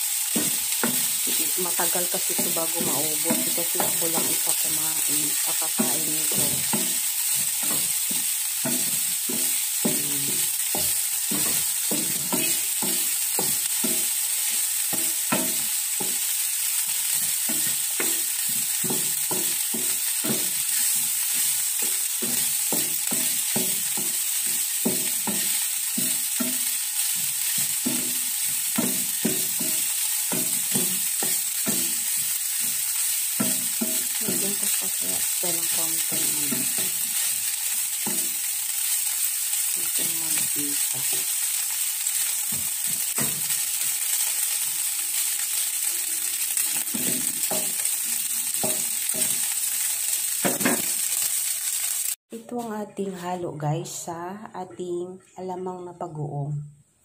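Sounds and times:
meat sizzling in a frying pan: 0:00.0 - 0:52.2
wooden spatula scraping pan: 0:17.1 - 0:23.9.

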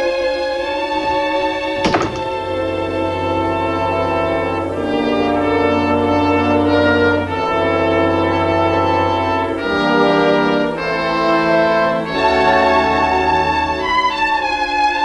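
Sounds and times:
orchestral brass chords: 0:02.6 - 0:13.7.

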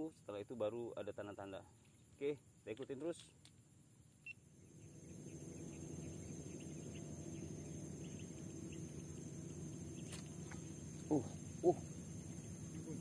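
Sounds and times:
crickets and insects chirring: 0:00.0 - 0:13.0
low even hum: 0:00.0 - 0:13.0
short low-pitched calls: 0:04.8 - 0:13.0.

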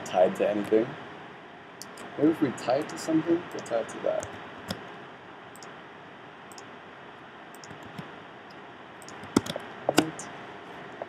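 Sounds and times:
keyboard and mouse clicks: 0:03.6 - 0:04.8, 0:07.5 - 0:08.1, 0:09.0 - 0:10.2
sharp clicks: 0:07.5 - 0:08.1, 0:09.0 - 0:10.2.

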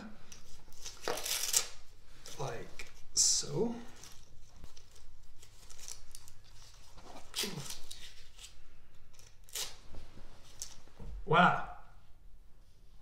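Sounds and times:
strap ripping and rustling: 0:00.3 - 0:02.4, 0:03.9 - 0:10.9.

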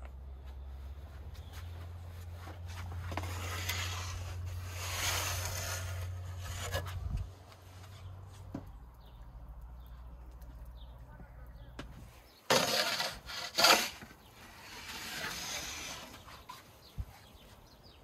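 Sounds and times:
wooden peel scraping oven floor: 0:02.4 - 0:08.5, 0:12.0 - 0:16.7.

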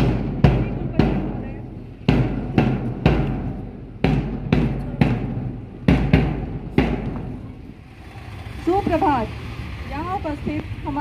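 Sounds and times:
drum strikes: 0:00.0 - 0:07.5.

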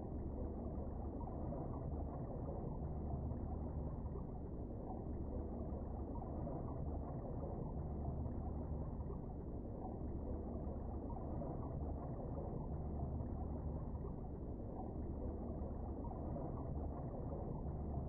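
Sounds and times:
muffled underwater rumble: 0:00.0 - 0:18.0.

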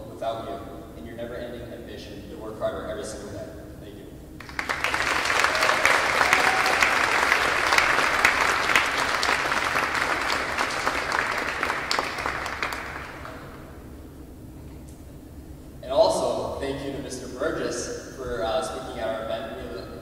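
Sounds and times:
audience applauding: 0:04.4 - 0:13.7.

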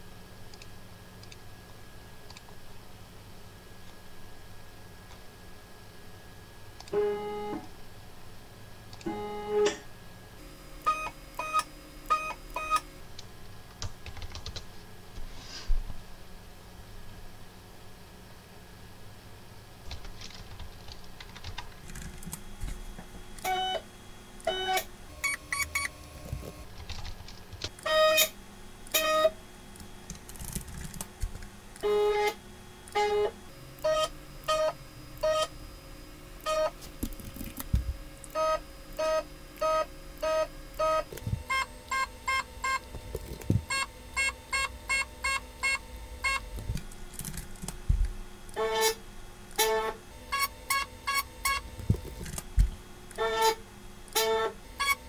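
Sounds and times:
keyboard typing: 0:13.8 - 0:14.7, 0:19.9 - 0:22.4, 0:25.2 - 0:27.9, 0:30.1 - 0:31.5, 0:46.6 - 0:47.8, 0:50.7 - 0:52.5
stepper motor tone: 0:22.6 - 0:26.7, 0:31.8 - 0:46.8, 0:48.0 - 0:55.0.

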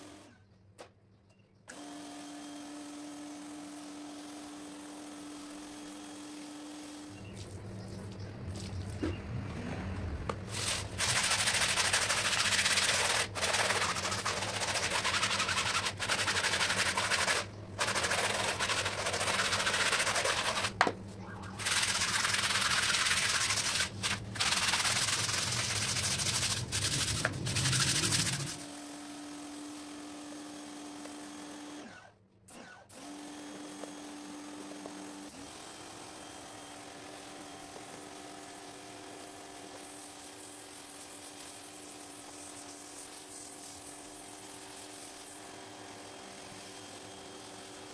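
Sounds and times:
brushes scrubbing wet rug: 0:10.4 - 0:20.8, 0:21.5 - 0:28.6.

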